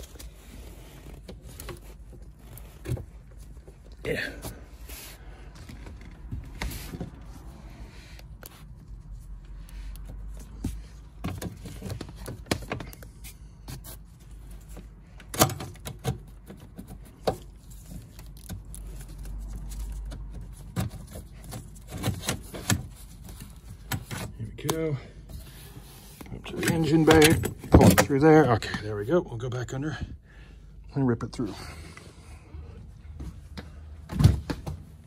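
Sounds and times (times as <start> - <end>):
cables clicking and rubbing: 8.2 - 24.9.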